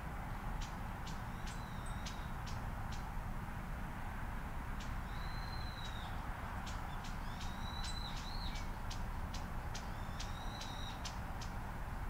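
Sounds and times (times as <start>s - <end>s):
small birds whistling: 1.1s - 2.4s, 5.0s - 8.8s, 9.7s - 11.6s.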